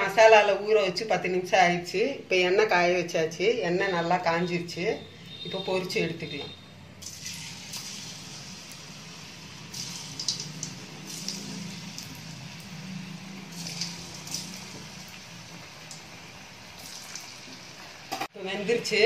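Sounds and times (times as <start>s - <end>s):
food deep-frying in hot oil: 7.0s - 19.0s.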